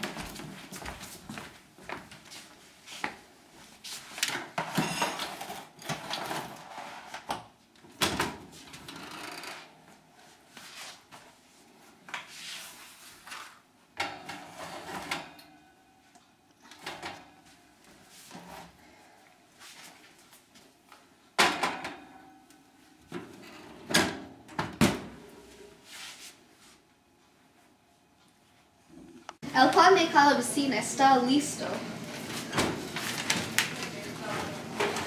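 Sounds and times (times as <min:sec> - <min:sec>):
kitchen knocks and clatters: 0:04.3 - 0:08.5, 0:21.4 - 0:22.3, 0:32.5 - 0:35.0.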